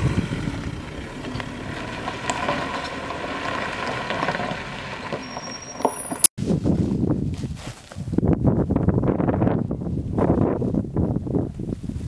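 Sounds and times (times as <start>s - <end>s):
fire truck driving past: 0.0s - 6.3s.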